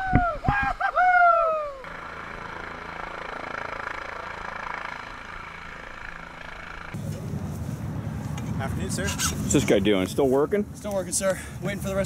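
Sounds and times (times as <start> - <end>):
person yelling: 0.0 - 1.8
engine drone: 0.0 - 9.1.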